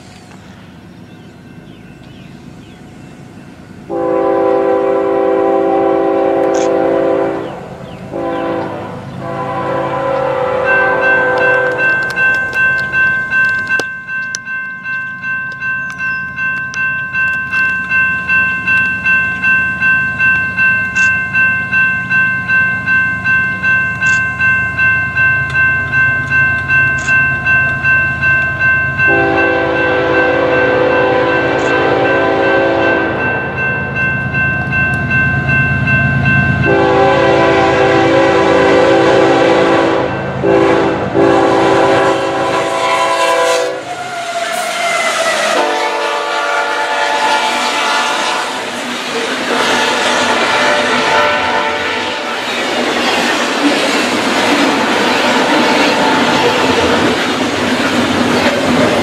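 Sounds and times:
railroad crossing bell ringing: 0:03.8 - 0:59.0
locomotive horn long blast: 0:03.9 - 0:12.3, 0:29.0 - 0:33.6, 0:36.6 - 0:52.4.

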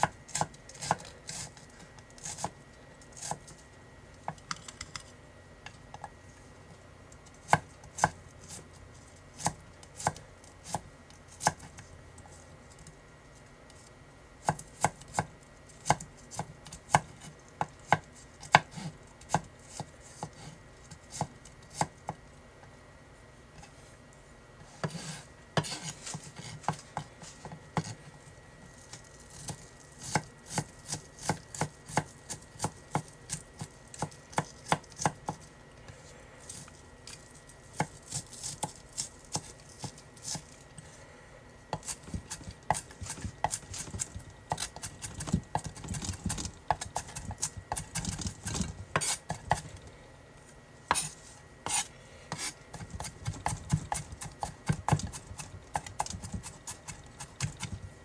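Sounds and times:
knife chopping on wooden board: 0:29.4 - 0:35.4, 0:41.7 - 0:49.7, 0:50.9 - 0:57.9.

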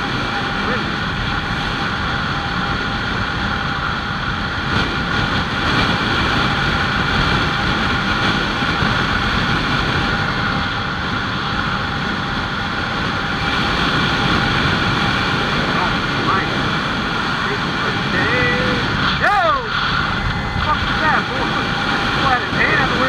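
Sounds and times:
wind rushing over microphone: 0:00.0 - 0:23.0.

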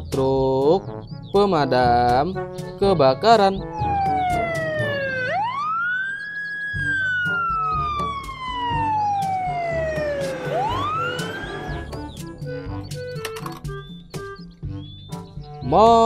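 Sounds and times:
fire engine siren wailing: 0:03.8 - 0:12.8.

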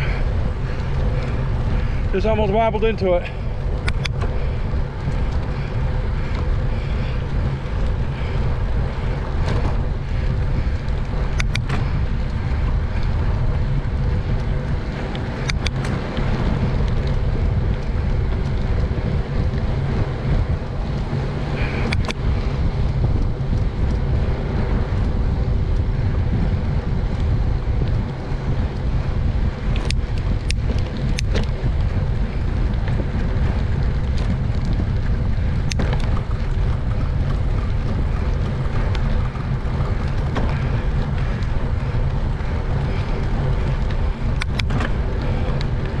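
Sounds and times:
low road rumble: 0:00.0 - 0:46.0
wind rush: 0:00.0 - 0:46.0
sharp clicks: 0:03.8 - 0:04.3, 0:11.0 - 0:12.0.

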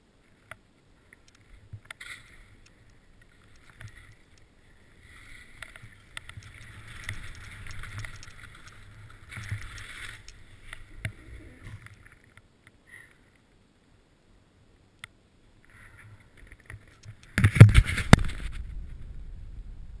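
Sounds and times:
skis scraping over snow: 0:01.6 - 0:11.8.

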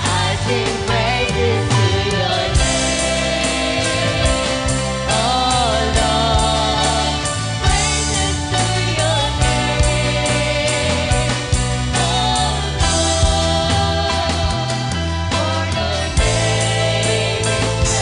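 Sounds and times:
drums keeping a steady beat: 0:00.0 - 0:18.0
guitars: 0:00.0 - 0:18.0
keyboard: 0:00.0 - 0:18.0.

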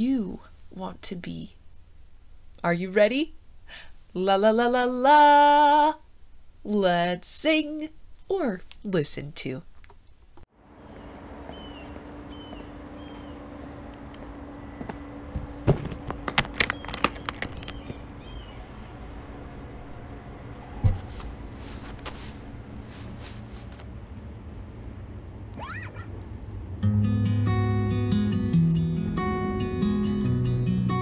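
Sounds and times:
low city hum: 0:00.0 - 0:31.0
birds chirping: 0:10.9 - 0:13.8, 0:16.5 - 0:19.1
guitar case thump: 0:15.4 - 0:17.0
guitar case clicks and knocks: 0:15.7 - 0:18.0.

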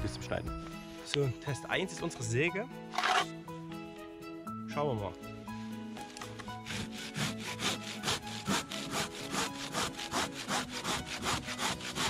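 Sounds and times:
hand saw cutting wood: 0:02.9 - 0:03.3, 0:06.5 - 0:12.0.

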